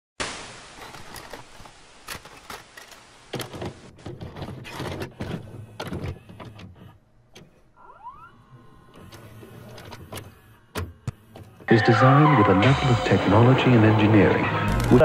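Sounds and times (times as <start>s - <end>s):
tape hiss: 0.2s - 3.9s, 7.8s - 15.0s
video cassette recorder clicks and clunks: 2.0s - 7.5s
motor whirring: 5.1s - 11.7s.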